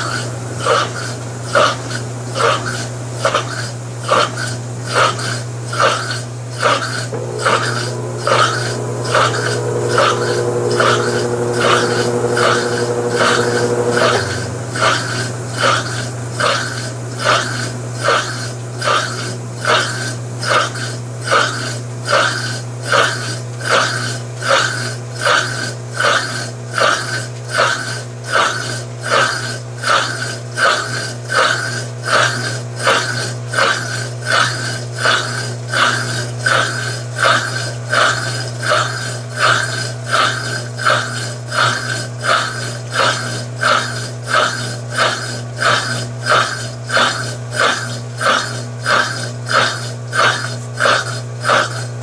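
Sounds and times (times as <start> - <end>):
agitator swishing: 0.0 - 52.0
washing machine motor hum: 0.0 - 52.0
hum with held tones: 7.1 - 17.8.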